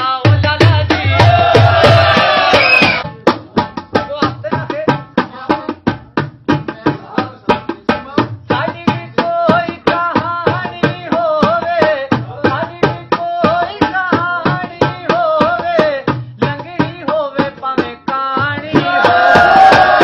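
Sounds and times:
hand drum beating: 0:00.0 - 0:20.0
man singing folk song: 0:06.6 - 0:19.1.

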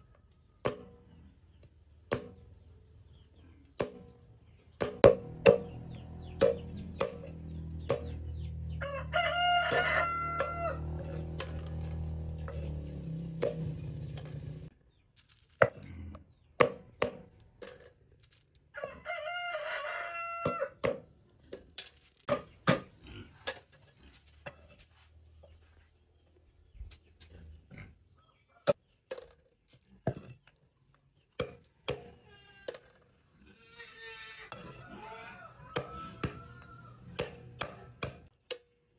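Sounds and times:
rooster crowing: 0:08.6 - 0:11.8, 0:18.7 - 0:20.8, 0:34.6 - 0:38.0
knife chopping on wooden board: 0:37.2 - 0:38.3.

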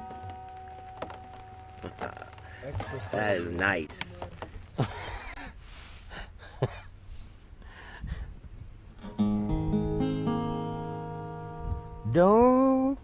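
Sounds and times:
acoustic guitar chord strummed: 0:09.0 - 0:12.9.

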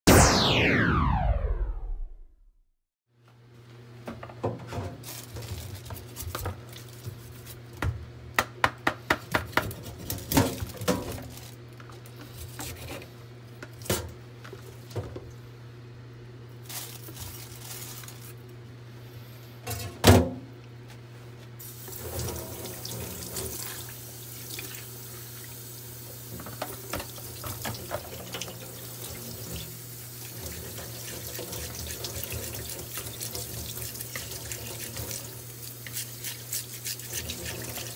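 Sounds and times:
low hum: 0:00.1 - 0:02.7
water running into sink: 0:21.6 - 0:37.9.

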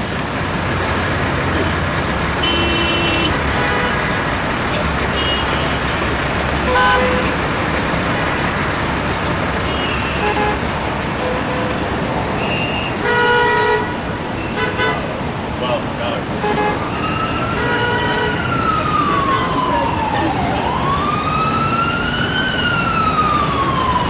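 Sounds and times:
traffic engine and tyre noise: 0:00.0 - 0:24.0
car horns honking: 0:02.4 - 0:06.0, 0:06.6 - 0:08.6, 0:09.2 - 0:18.6.

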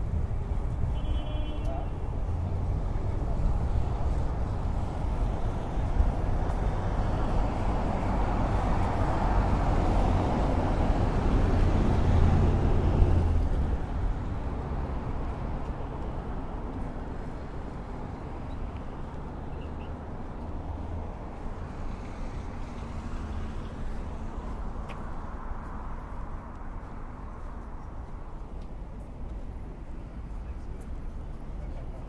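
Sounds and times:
traffic hum: 0:00.0 - 0:32.0.

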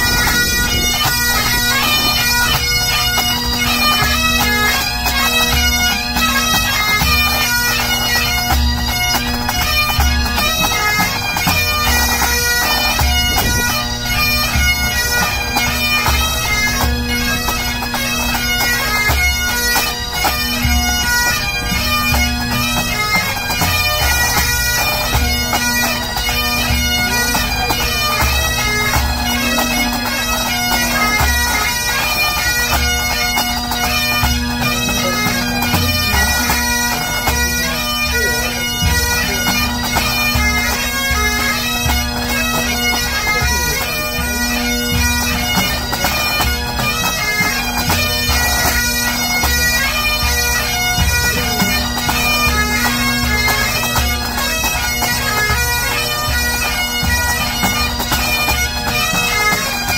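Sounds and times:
bagpipes playing over drone: 0:00.0 - 0:59.9
drums beating time: 0:34.0 - 0:42.7.

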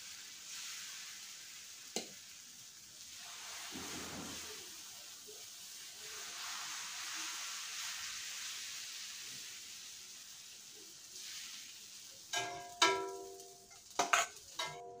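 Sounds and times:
soft sizzle on hot griddle: 0:00.0 - 0:15.0
metallic clinks on griddle: 0:12.3 - 0:15.0.

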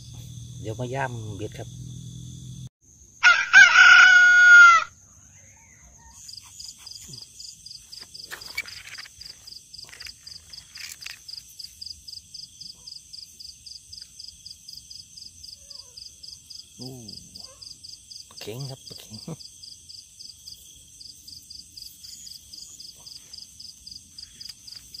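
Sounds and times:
insect chirping: 0:00.0 - 0:25.0
rooster crowing: 0:03.2 - 0:06.1.

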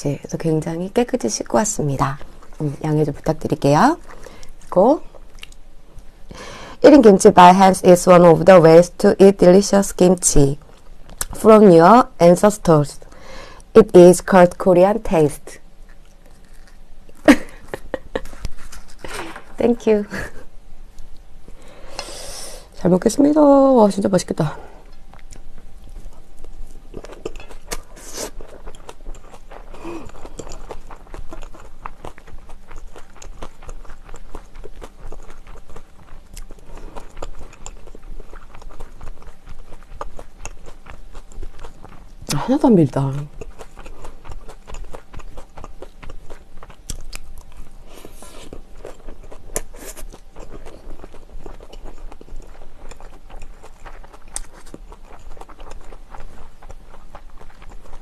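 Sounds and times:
close chewing: 0:15.8 - 0:19.5, 0:24.8 - 0:58.0.

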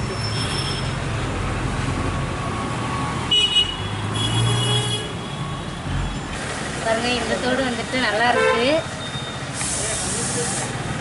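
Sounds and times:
road traffic: 0:00.0 - 0:11.0
vehicle horns: 0:03.3 - 0:05.4, 0:08.2 - 0:08.8.

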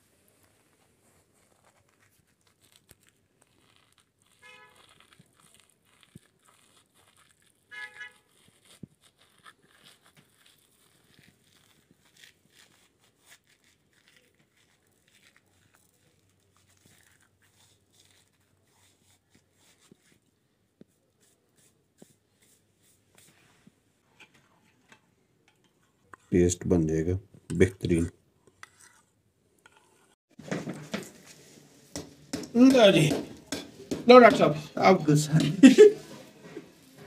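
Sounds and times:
dry seasoning crinkling and rustling: 0:00.3 - 0:20.2.

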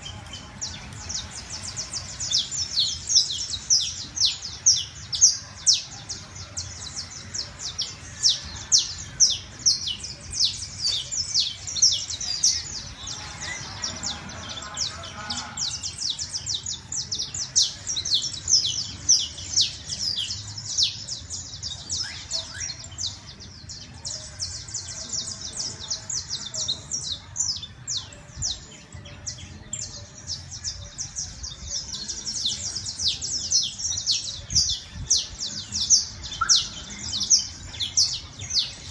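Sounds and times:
finch singing: 0:00.0 - 0:38.9.

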